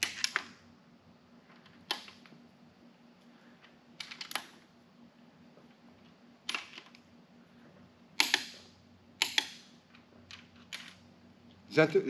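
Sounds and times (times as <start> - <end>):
torque wrench clicking: 8.2 - 8.6, 9.2 - 9.6.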